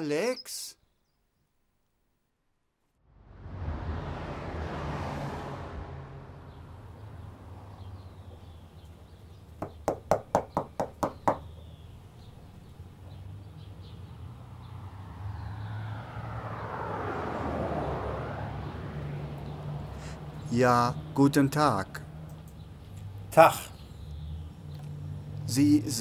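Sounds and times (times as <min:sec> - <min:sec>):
rushing noise: 0:03.0 - 0:07.4
knocking on wooden door: 0:09.6 - 0:11.5.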